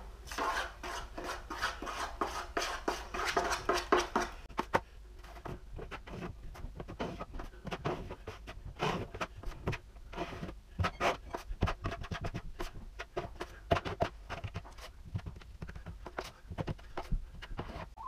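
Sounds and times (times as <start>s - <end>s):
drywall knife scraping: 0.3s - 4.5s, 5.2s - 15.0s.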